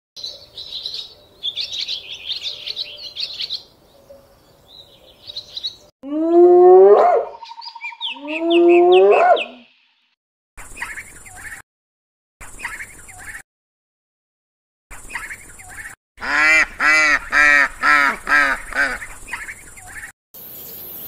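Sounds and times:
birds chirping: 0.2s - 5.9s, 7.2s - 11.6s, 12.4s - 13.4s, 14.9s - 21.0s
hyena whoop calls: 8.1s - 9.6s.

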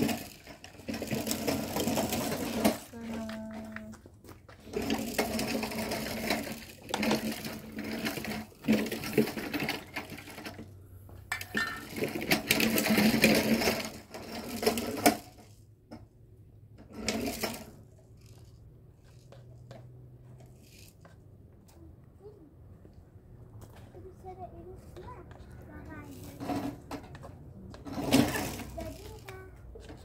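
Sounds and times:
metal paint tins clinking: 11.3s - 13.2s
paint stirred with a stick: 17.9s - 21.4s.

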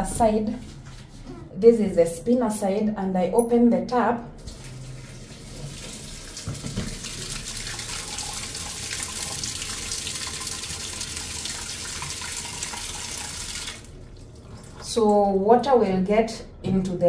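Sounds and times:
tap water splashing into basket: 4.5s - 14.9s.

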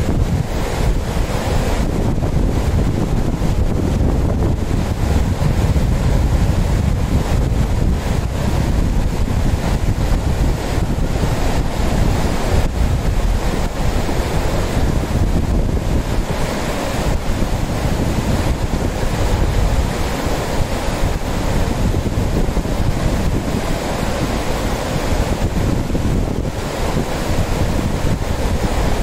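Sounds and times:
river rushing over rocks: 0.0s - 29.0s
wind rumbling on microphone: 0.0s - 29.0s.

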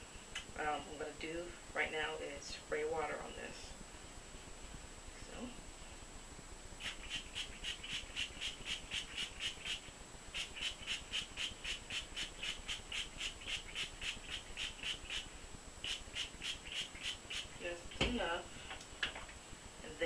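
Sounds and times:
spray bottle squirting: 10.4s - 17.5s.

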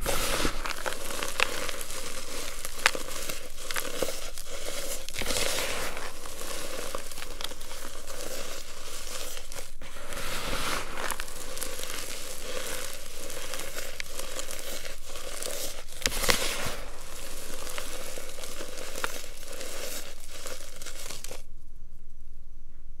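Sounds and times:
chalk crunching and crackling: 0.0s - 21.5s.

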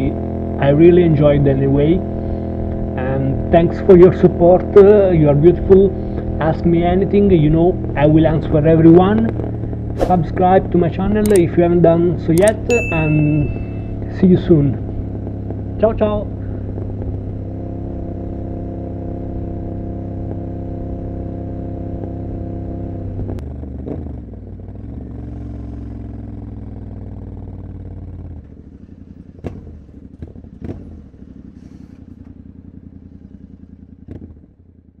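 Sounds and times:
motorcycle engine running: 0.0s - 35.0s
sharp clicks: 11.2s - 11.5s, 12.4s - 13.7s.

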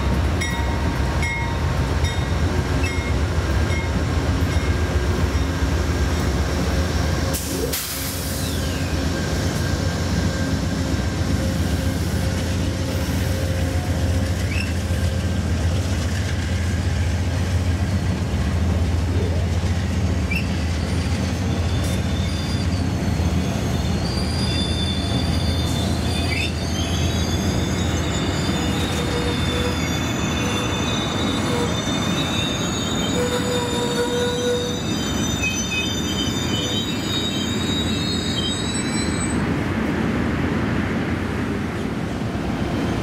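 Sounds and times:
train wheels rumbling on rails: 0.0s - 43.0s
train wheels squealing: 3.8s - 18.0s, 19.4s - 39.6s.

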